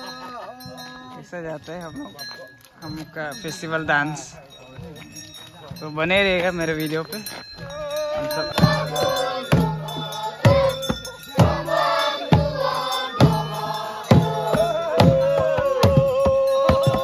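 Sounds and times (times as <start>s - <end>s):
men chanting a dance song: 2.9s - 17.0s
barrel drum beating: 4.8s - 17.0s.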